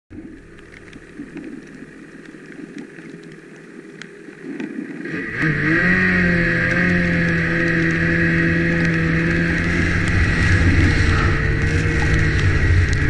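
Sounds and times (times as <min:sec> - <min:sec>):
small clicks: 0:00.2 - 0:05.0, 0:06.6 - 0:10.3
snowmobile engine running: 0:05.1 - 0:13.0.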